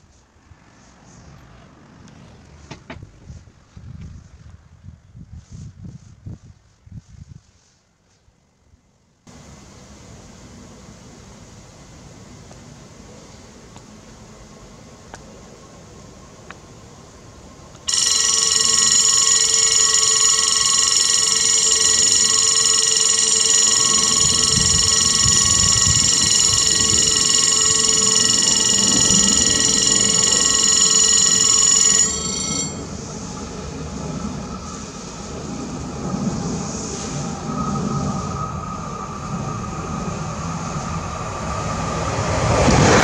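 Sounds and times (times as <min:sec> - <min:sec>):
level crossing bell ringing: 0:17.9 - 0:33.0.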